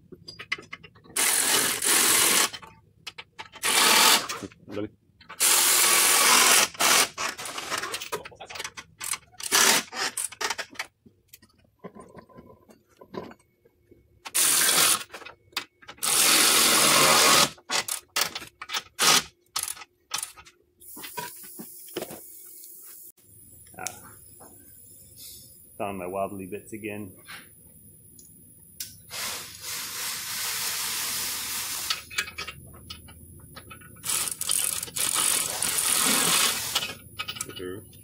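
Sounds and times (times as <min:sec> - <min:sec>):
steady hiss: 0:24.6 - 0:26.9, 0:28.8 - 0:32.1
powered ratchet running: 0:34.0 - 0:36.9
ratchet clicks: 0:34.0 - 0:37.6.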